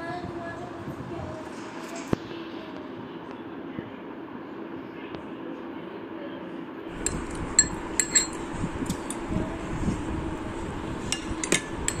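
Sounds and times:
spoon clinking on a ceramic plate: 7.0s - 8.4s, 11.1s - 12.0s.

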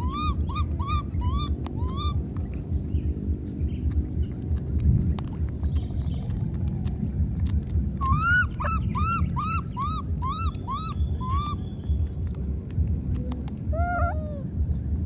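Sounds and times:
baby monkey squealing: 0.0s - 2.4s, 8.0s - 12.2s, 13.7s - 14.5s
steady low rumble: 0.0s - 15.0s.

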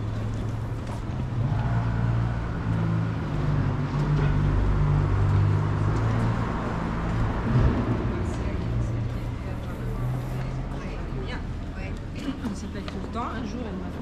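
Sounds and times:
street traffic: 0.0s - 14.0s
vehicle engine running nearby: 0.0s - 14.0s.

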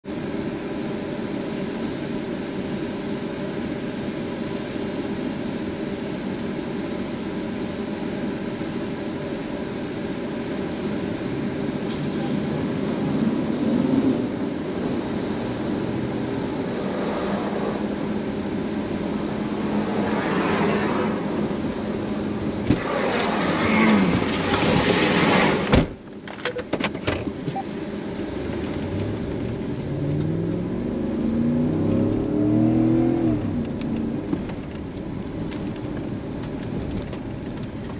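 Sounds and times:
vehicle engine and road rumble: 0.0s - 37.9s
rushing noise: 11.8s - 25.8s.

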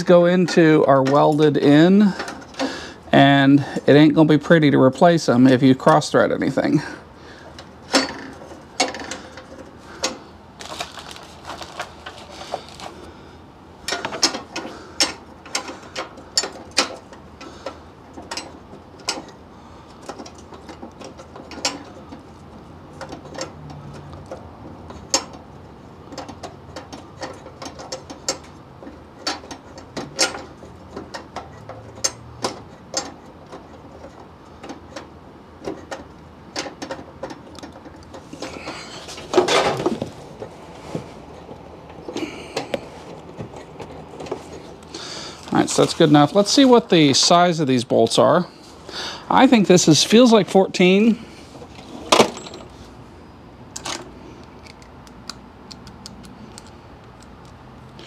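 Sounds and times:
metallic clicks of bolts: 53.8s - 58.0s.

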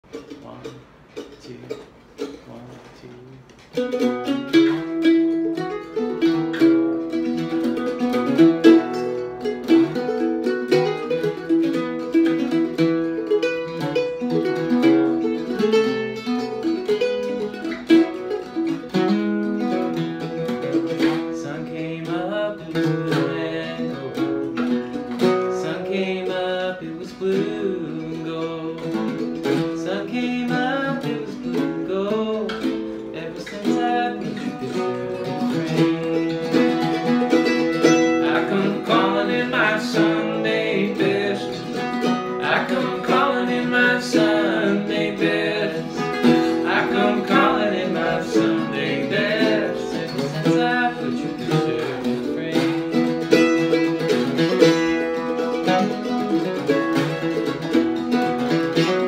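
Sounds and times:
mandolin duet: 0.0s - 59.0s
man singing: 15.1s - 16.3s, 21.2s - 24.5s, 25.3s - 36.7s, 38.2s - 53.0s.

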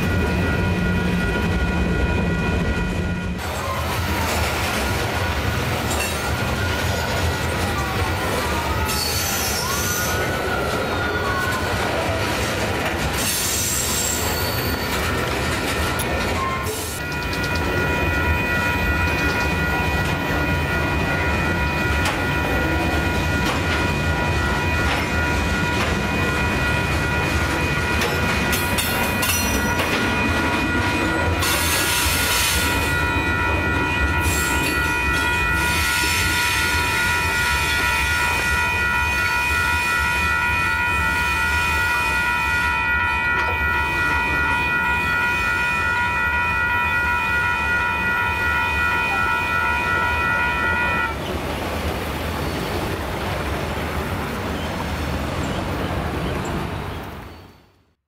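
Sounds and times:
train wheels rumbling and clacking: 0.0s - 46.2s
wheel-flange squeal: 5.9s - 12.2s, 13.1s - 18.1s, 54.5s - 57.8s.

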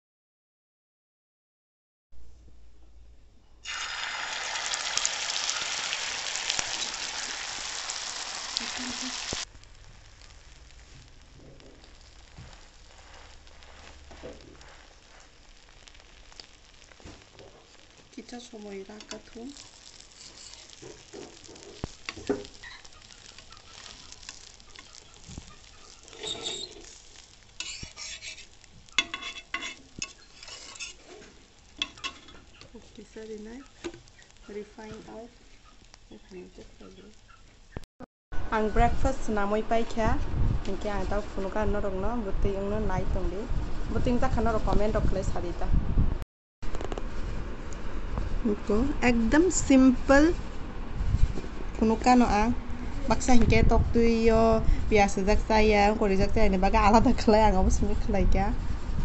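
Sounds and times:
batter sizzling in hot oil: 3.6s - 37.8s, 39.0s - 45.2s, 46.6s - 59.0s
metal spatula scraping pan: 18.9s - 32.8s.

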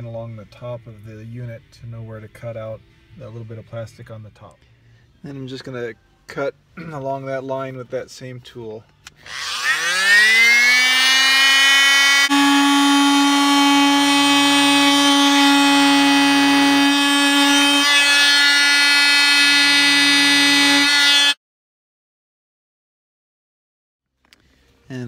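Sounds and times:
multi-tool buzzing cutting plastic: 9.1s - 21.4s.

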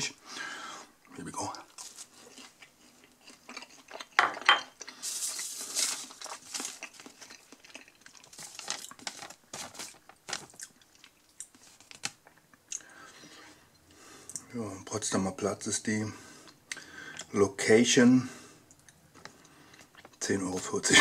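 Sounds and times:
chewing: 1.7s - 9.1s, 18.7s - 20.2s
paper receipt rustling: 5.0s - 7.5s, 8.1s - 10.7s, 11.4s - 12.2s.

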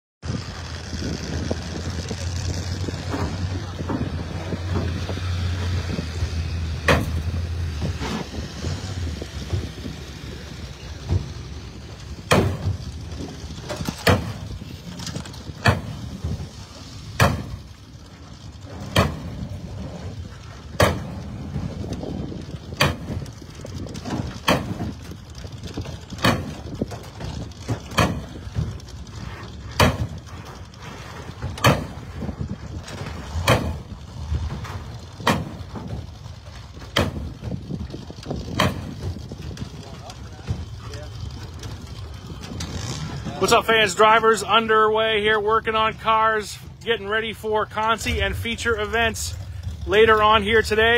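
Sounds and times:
low steady hum: 0.3s - 50.9s
sledgehammer striking sheet metal: 6.8s - 7.3s, 12.3s - 12.8s, 13.8s - 14.4s, 17.2s - 17.6s, 29.8s - 30.2s, 31.6s - 32.1s, 33.4s - 33.8s, 37.0s - 37.3s.

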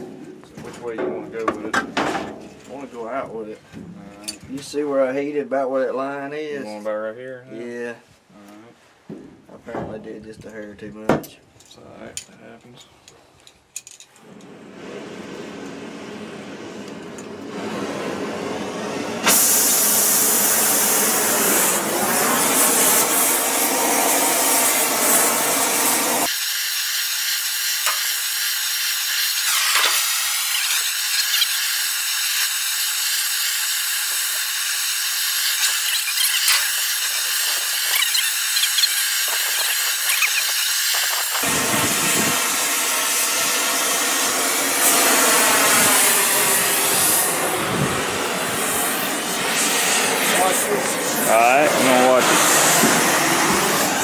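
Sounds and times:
gas torch flame hissing: 14.2s - 54.0s.

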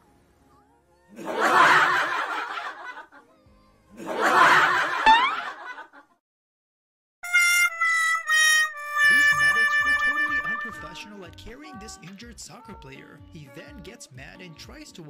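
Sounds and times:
person laughing: 4.2s - 5.6s, 9.1s - 11.0s.

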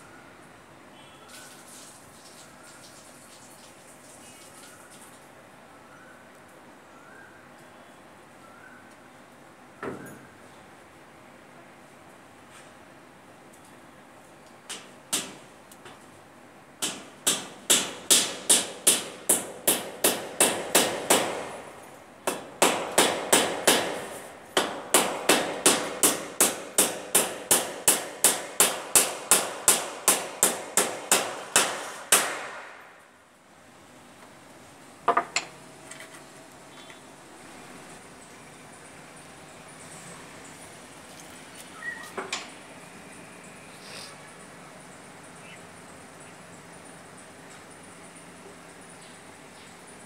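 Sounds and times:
hammer striking wooden board: 16.8s - 21.5s, 22.3s - 32.6s.

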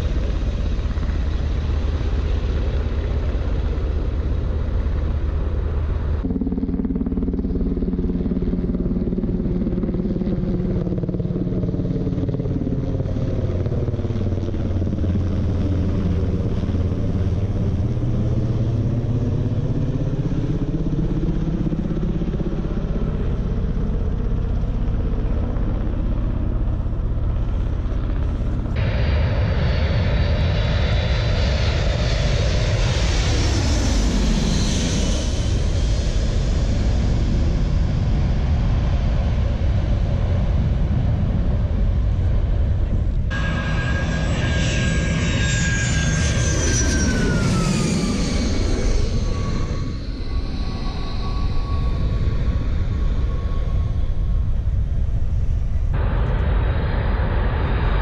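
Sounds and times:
jet engines roaring: 0.0s - 6.6s, 20.9s - 58.0s
helicopter flying overhead: 0.0s - 58.0s.

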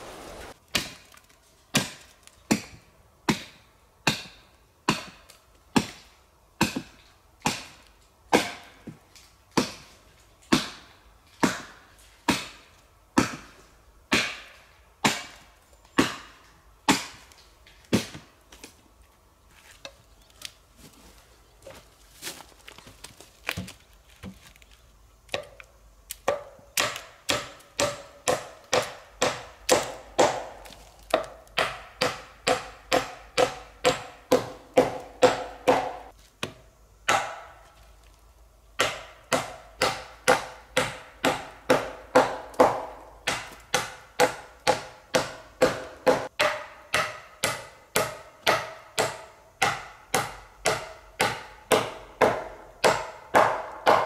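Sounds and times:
hammering on wood: 6.6s - 8.9s, 26.2s - 37.6s, 38.8s - 54.0s.

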